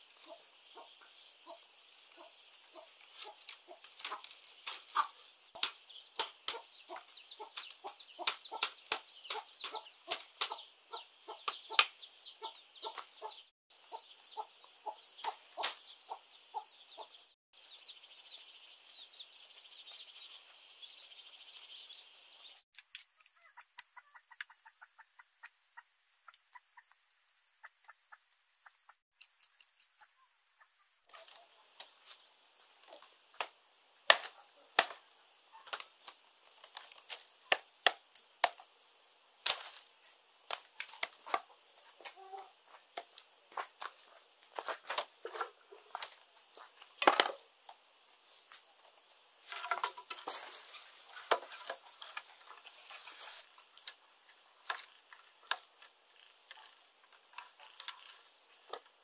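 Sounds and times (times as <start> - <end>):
bamboo strips cracking and knocking: 2.8 - 10.6, 15.2 - 15.8, 22.7 - 24.6, 32.8 - 38.7, 39.4 - 39.8, 40.5 - 42.3, 42.9 - 47.4, 49.4 - 59.0.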